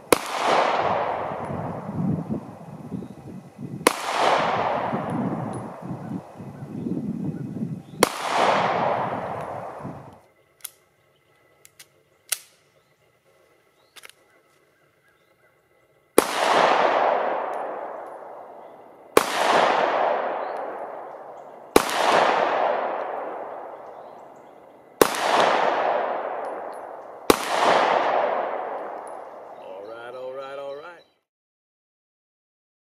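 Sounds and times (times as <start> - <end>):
pistol shots with echo: 0.0 - 6.4, 7.8 - 10.1, 16.2 - 29.6.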